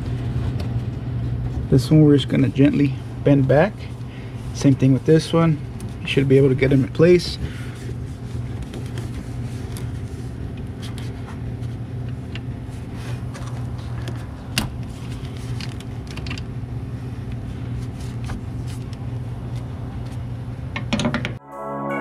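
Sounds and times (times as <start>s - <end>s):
low mechanical hum: 0.0s - 21.4s.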